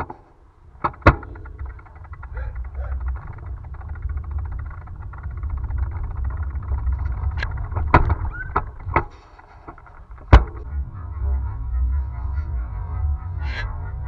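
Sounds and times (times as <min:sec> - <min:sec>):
sharp clicks and knocks: 0:00.0 - 0:11.0
wind and road rumble: 0:00.0 - 0:14.0.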